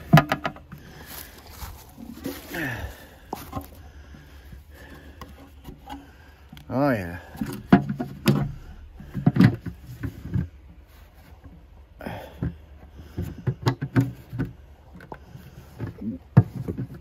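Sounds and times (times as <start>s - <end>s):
hard objects knocking and clattering: 0.0s - 2.5s, 7.4s - 10.6s.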